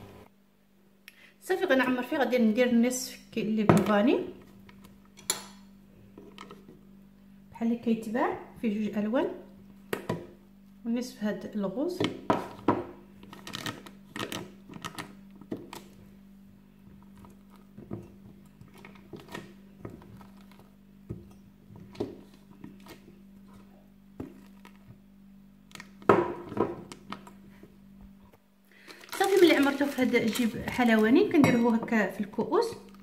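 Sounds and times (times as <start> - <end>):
plastic bag rustling: 28.7 - 31.4.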